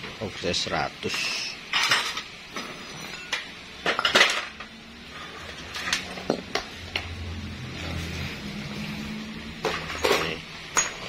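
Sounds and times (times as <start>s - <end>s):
metal engine parts clinking: 1.7s - 4.7s, 9.6s - 11.0s.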